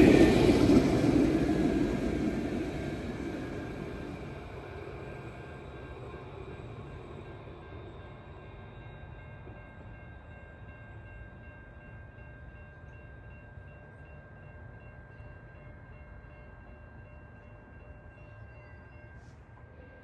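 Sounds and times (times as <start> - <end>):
electric tram rumbling: 0.0 - 20.0.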